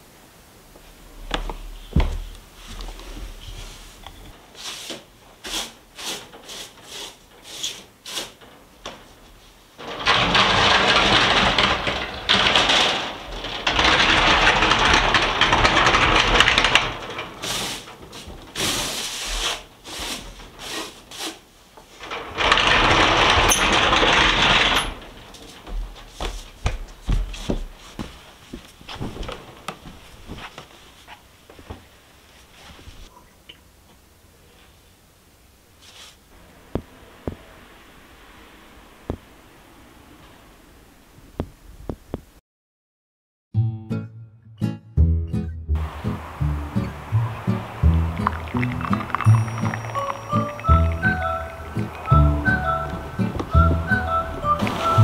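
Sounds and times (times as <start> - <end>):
broom sweeping wooden floor: 2.5 - 8.4, 17.3 - 21.6, 35.8 - 36.3, 52.6 - 55.0.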